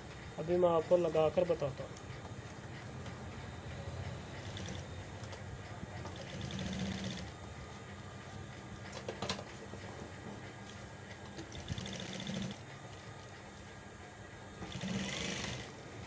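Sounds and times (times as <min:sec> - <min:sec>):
sewing machine running hum: 0:04.3 - 0:05.0, 0:06.0 - 0:07.5, 0:11.4 - 0:13.4, 0:14.5 - 0:16.0.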